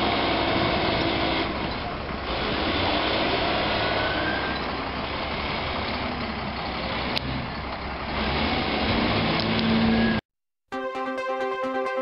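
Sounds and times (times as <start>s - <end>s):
heavy diesel machinery running: 0.0s - 10.2s.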